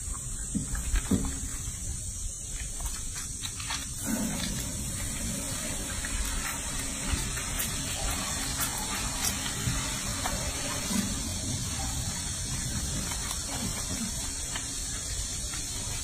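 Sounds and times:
steady hiss: 0:00.0 - 0:16.0
water splashing in a sink: 0:04.0 - 0:16.0.

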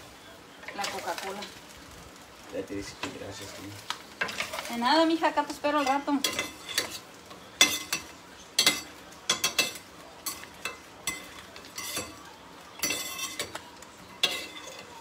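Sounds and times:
metal skimmer clinking on frying pan: 0:12.8 - 0:13.6.

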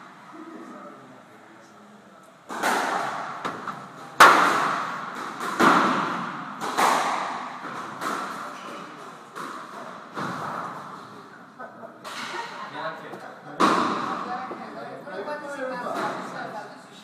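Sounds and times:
squash ball smacks echoing: 0:02.5 - 0:11.0, 0:13.6 - 0:14.4.

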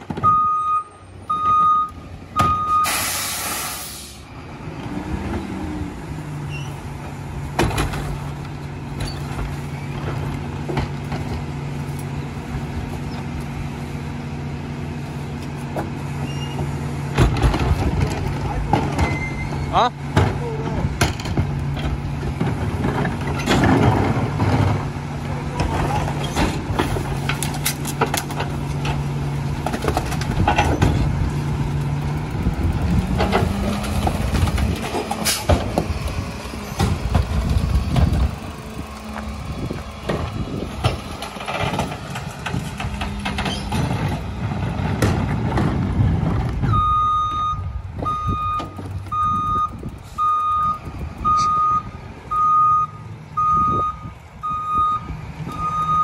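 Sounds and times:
garbage truck diesel engine: 0:00.0 - 0:56.0
reversing alarm beeping: 0:00.2 - 0:03.3, 0:46.7 - 0:56.0.

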